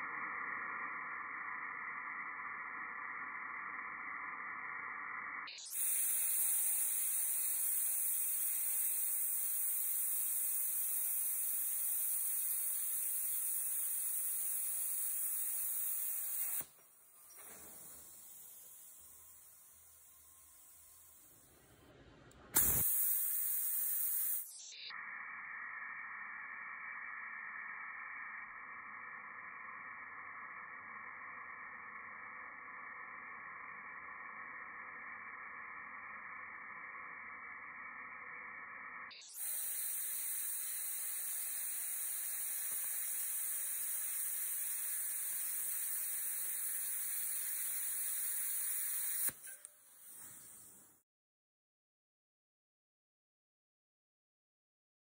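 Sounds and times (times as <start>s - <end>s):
plasma cutter hissing: 0.1s - 21.7s, 22.5s - 50.9s
clicks: 22.2s - 22.9s, 49.0s - 50.5s
short pop: 22.5s - 23.0s.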